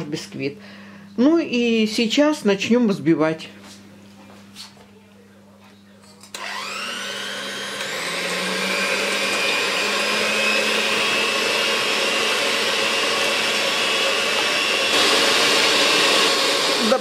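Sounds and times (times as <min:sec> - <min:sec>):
electric hand mixer whining: 0:06.3 - 0:17.0.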